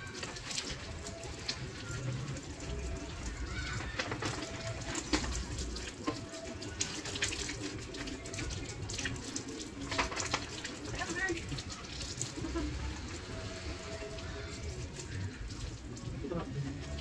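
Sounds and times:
hose water splashing: 0:00.0 - 0:17.0
small knocks and clatters: 0:03.5 - 0:06.4, 0:09.8 - 0:10.8.

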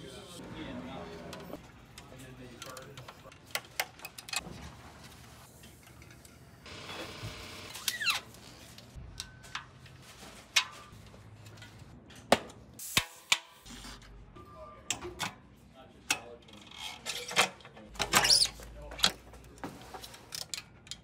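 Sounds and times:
bicycle parts clicking and tapping: 0:01.9 - 0:04.4, 0:20.2 - 0:21.0.

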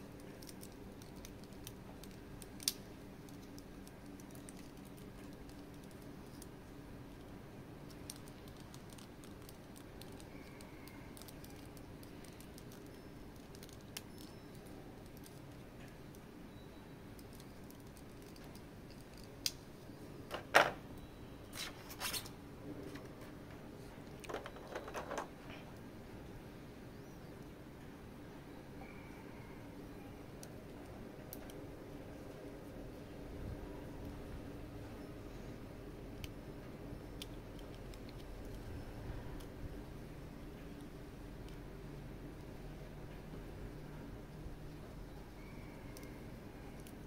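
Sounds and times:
plastic packaging clicks: 0:07.9 - 0:16.2.

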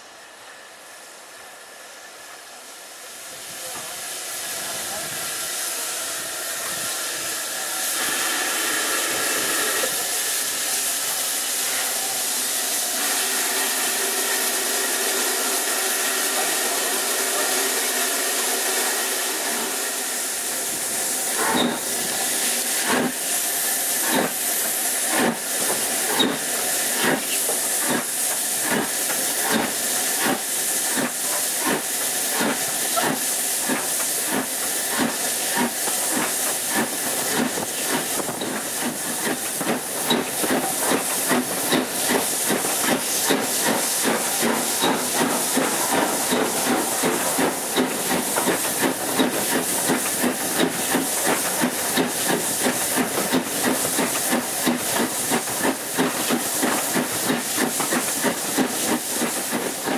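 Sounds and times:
steam locomotive hissing steam: 0:00.0 - 0:59.9.

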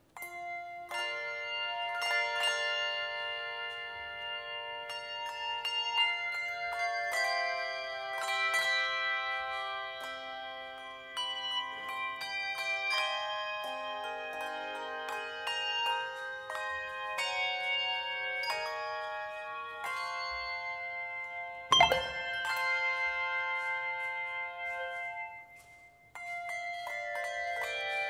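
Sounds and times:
handbell choir ringing: 0:21.7 - 0:23.0.

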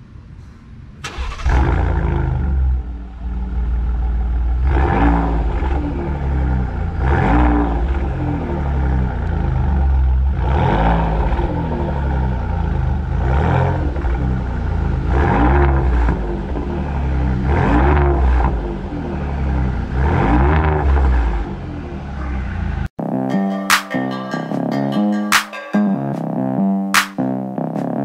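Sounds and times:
deep engine idle rumble: 0:00.0 - 0:07.1, 0:07.7 - 0:15.1
truck exhaust revving: 0:01.1 - 0:22.9.

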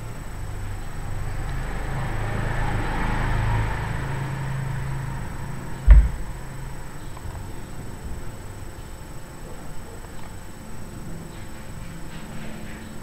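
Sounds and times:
vehicle passing: 0:00.6 - 0:07.0
sharp thump: 0:05.9 - 0:06.4.

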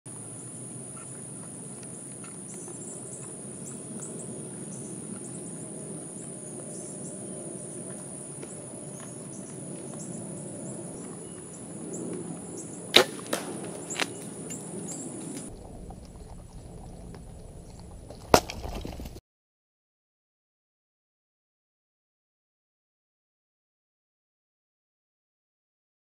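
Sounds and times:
high insect drone: 0:00.1 - 0:17.8
arrow shot crack: 0:12.9 - 0:14.6.

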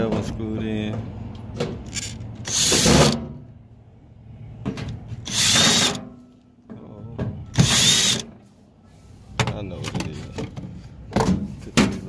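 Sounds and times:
cordless drill driving screws: 0:02.4 - 0:03.2, 0:05.3 - 0:06.0, 0:07.6 - 0:08.3.

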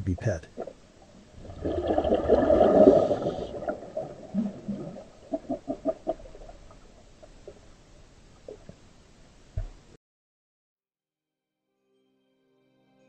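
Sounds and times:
underwater bubbles gurgling: 0:00.5 - 0:08.8.

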